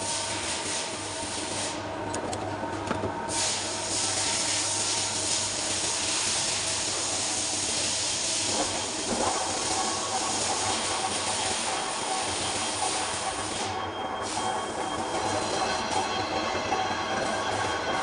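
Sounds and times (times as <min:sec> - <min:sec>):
lathe humming: 0:04.3 - 0:18.0.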